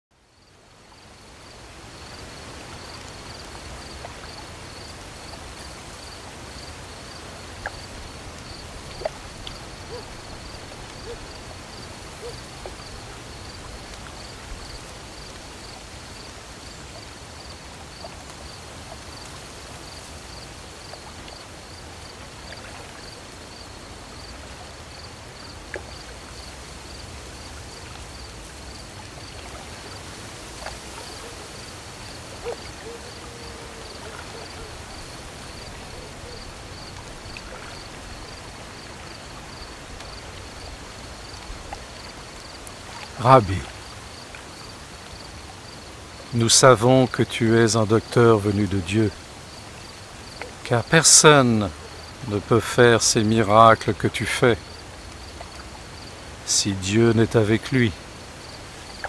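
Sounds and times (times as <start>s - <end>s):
cricket chirping: 0.2s - 56.4s, 57.2s - 59.0s
short animal calls: 11.0s - 11.4s, 12.1s - 12.5s, 30.6s - 36.9s.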